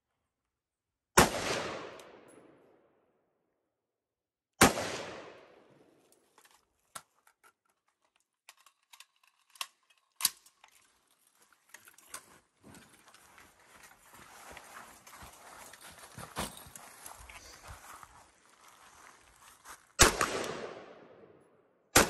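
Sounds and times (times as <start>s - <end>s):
echoing rifle shots: 1.2s - 2.6s, 4.6s - 5.9s, 20.0s - 21.4s
rifle handling clicks: 6.1s - 10.9s.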